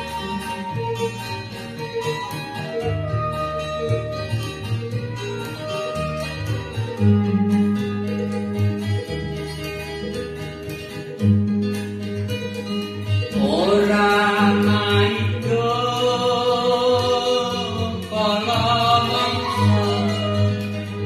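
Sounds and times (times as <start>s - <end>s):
plucked strings over bass: 0.0s - 21.0s
person singing: 13.3s - 21.0s.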